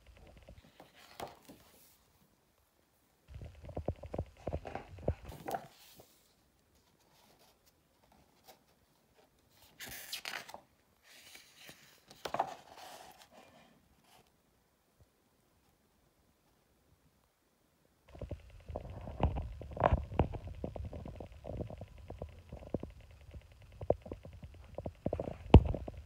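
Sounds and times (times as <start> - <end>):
paper pages rustling: 0.4 - 2.1, 3.8 - 8.7.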